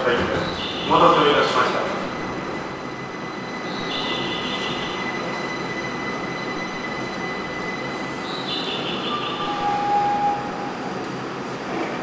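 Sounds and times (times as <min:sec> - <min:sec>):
maglev train running hum: 0:00.0 - 0:12.0
thin high whine: 0:00.4 - 0:11.6.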